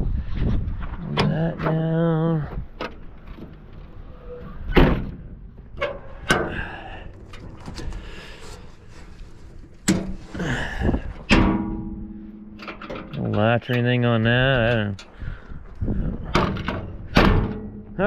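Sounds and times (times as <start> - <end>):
metal door knocks and bangs: 4.7 - 5.3, 16.3 - 18.0.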